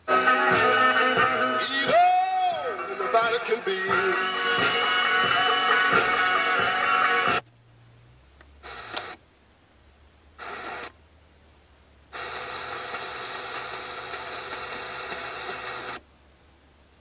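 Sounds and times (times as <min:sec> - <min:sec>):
radio noise bursts: 0:08.6 - 0:09.2, 0:10.4 - 0:10.9
radio static and hiss: 0:08.6 - 0:09.2, 0:10.4 - 0:11.0, 0:12.1 - 0:16.0.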